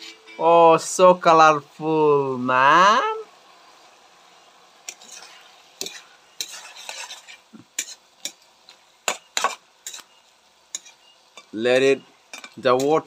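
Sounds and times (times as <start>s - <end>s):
low sizzle of frying: 0.0s - 13.0s
spatula scraping in wok: 4.4s - 13.0s.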